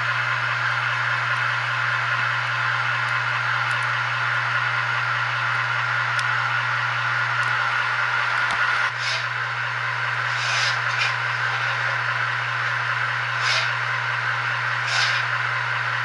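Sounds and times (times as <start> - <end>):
model train motor hum: 0.0 - 16.0
short hissing swishes: 9.0 - 9.3, 10.3 - 11.1, 13.4 - 13.7, 14.9 - 15.3.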